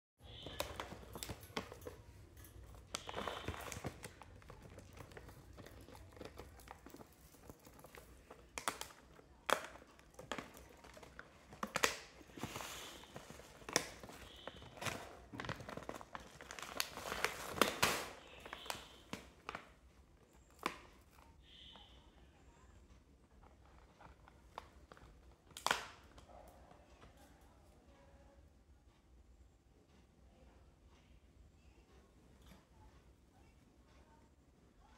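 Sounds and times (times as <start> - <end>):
plastic packet crinkling: 2.6 - 19.7.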